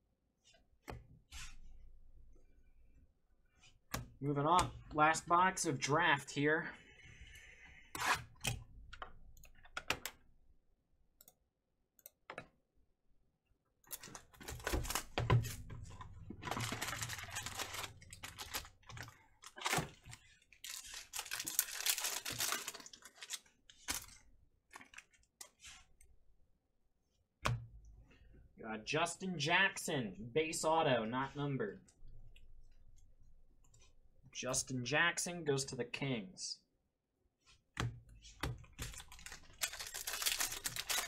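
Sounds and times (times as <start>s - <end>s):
foil pack tearing and crinkling: 13.9s - 15.6s, 16.4s - 24.1s, 38.9s - 41.0s.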